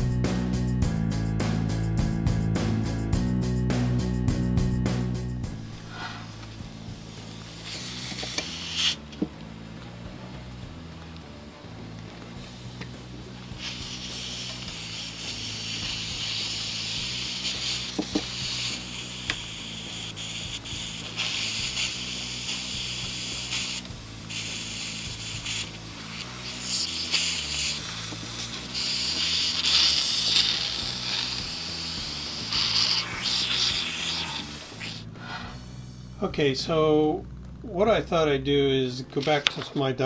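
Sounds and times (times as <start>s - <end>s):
steam hissing: 5.5s - 9.1s, 12.4s - 35.8s.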